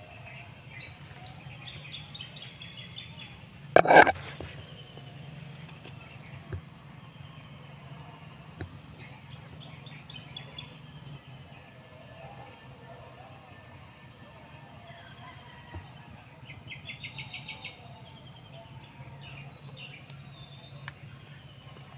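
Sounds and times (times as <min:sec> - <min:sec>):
small birds chirping: 0:00.0 - 0:14.0
low outdoor background: 0:00.0 - 0:21.9
phone handling rustle: 0:03.8 - 0:04.6.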